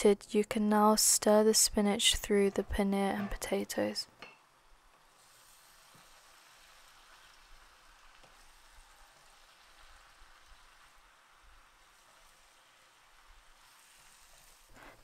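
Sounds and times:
spinach sizzling in frying pan: 0:04.4 - 0:15.0.

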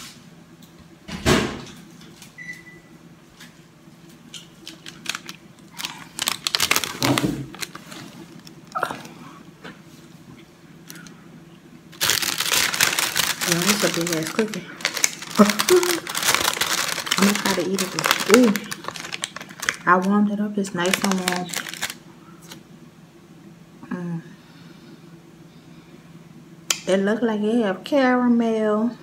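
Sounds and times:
paper bag crinkling: 0:04.5 - 0:08.8, 0:12.0 - 0:22.6.

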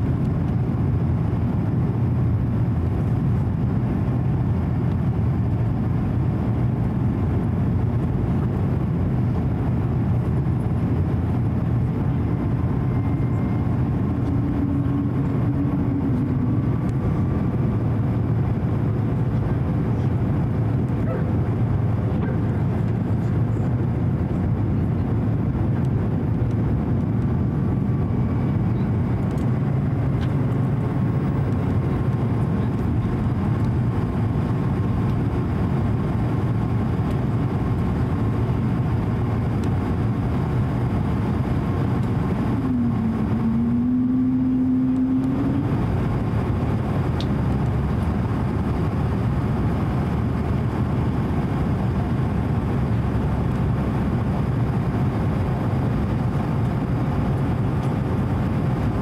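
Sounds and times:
jet engines rumbling: 0:00.0 - 0:59.0
low hum: 0:00.0 - 0:59.0
faint steady tones: 0:11.7 - 0:19.0, 0:39.8 - 0:47.3.

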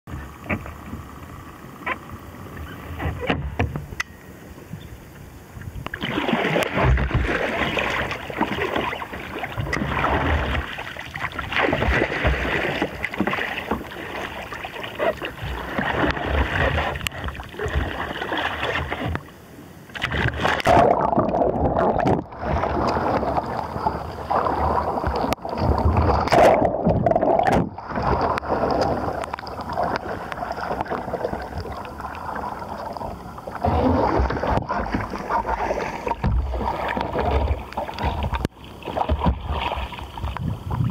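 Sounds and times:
water splashing and gurgling: 0:05.6 - 0:40.9.

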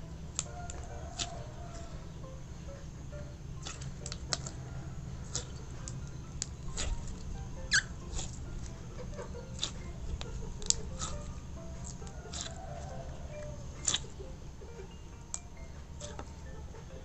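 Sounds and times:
slime squelching clicks and pops: 0:03.6 - 0:04.5, 0:13.8 - 0:14.1.

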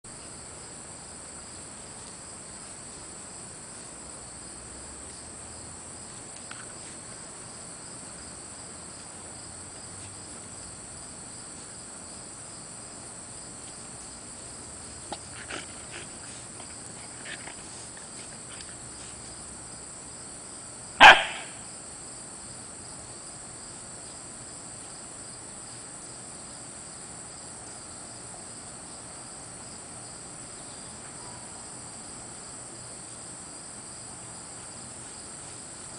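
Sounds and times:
crickets chirring: 0:00.1 - 0:35.9
puppy barking: 0:21.0 - 0:21.6.

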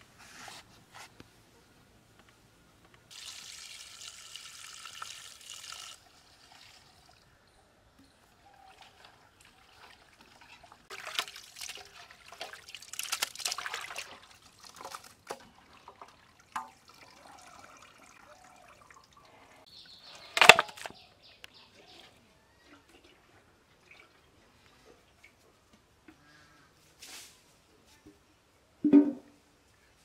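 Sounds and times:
water dripping: 0:03.1 - 0:08.1, 0:08.7 - 0:19.4
water splashing and sloshing: 0:08.6 - 0:19.6.

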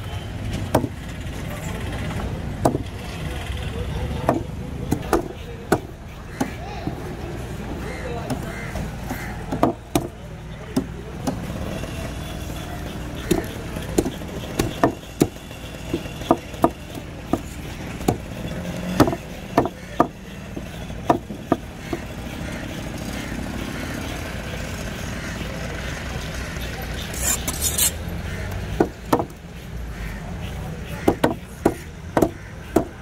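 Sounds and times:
background traffic rumble: 0:00.0 - 0:33.0
knife chopping fish on wooden board: 0:04.2 - 0:07.0, 0:18.8 - 0:22.1, 0:31.0 - 0:33.0.

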